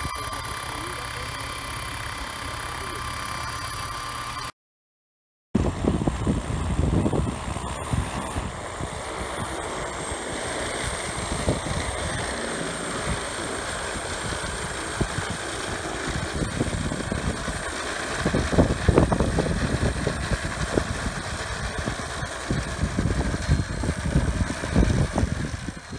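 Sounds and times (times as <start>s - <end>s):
drone rotors whirring: 0.0s - 4.5s, 5.6s - 25.9s
gusty low rumble: 5.6s - 9.1s.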